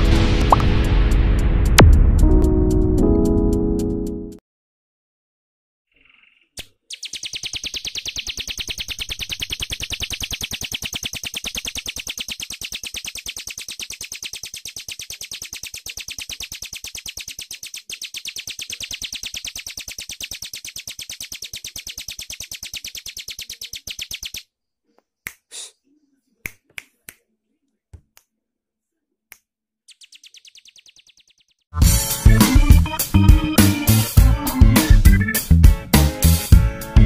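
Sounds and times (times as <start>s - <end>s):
bird calling with sharp ticks: 5.9s - 24.5s, 29.9s - 31.7s.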